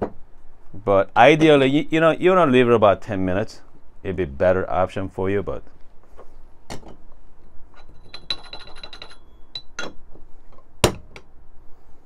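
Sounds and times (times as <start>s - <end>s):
faint metallic ringing: 7.7s - 10.0s
metal funnel clinking on portafilter: 7.8s - 10.0s.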